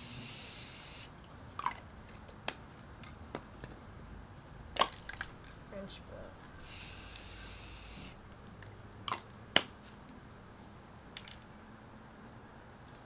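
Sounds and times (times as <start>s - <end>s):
spray paint can hissing: 0.0s - 1.1s, 6.6s - 8.2s.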